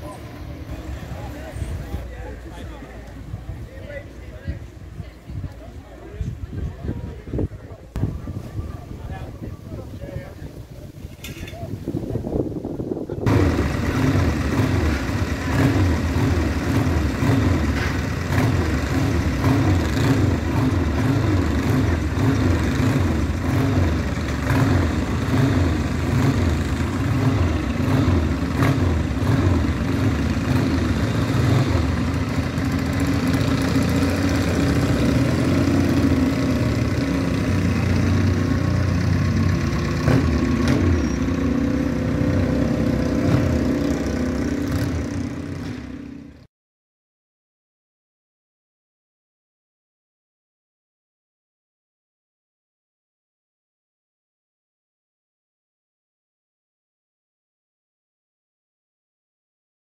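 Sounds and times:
tractor engine running: 12.9s - 46.2s.

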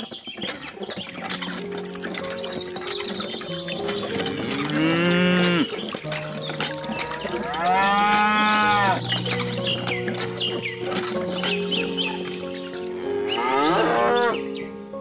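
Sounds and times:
cow mooing: 4.0s - 10.3s, 12.8s - 14.5s.

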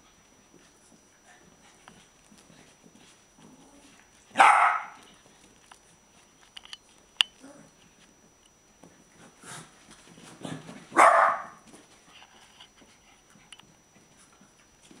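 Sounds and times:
dog barking: 4.4s - 5.0s, 10.9s - 11.6s.

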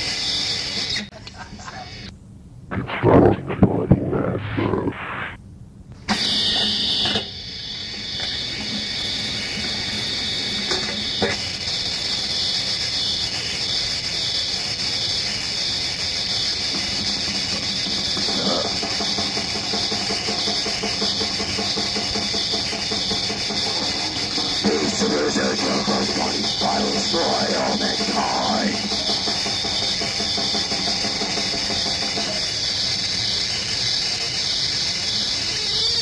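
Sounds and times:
cassette hiss: 0.0s - 13.0s, 16.2s - 33.6s
metal band playing: 23.8s - 32.5s.

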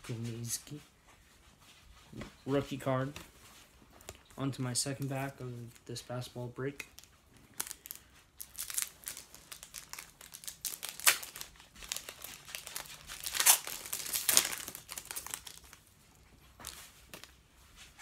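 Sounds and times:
wrapper tearing and crinkling: 6.9s - 15.8s.

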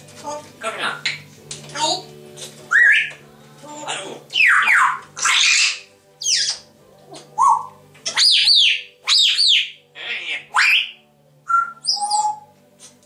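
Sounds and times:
parrots whistling and squawking: 1.9s - 13.0s
steady parrot whistle: 10.5s - 12.6s.

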